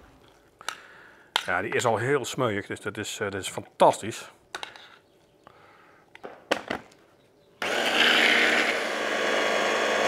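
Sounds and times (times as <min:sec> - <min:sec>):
hand blender running: 0:07.6 - 0:10.0.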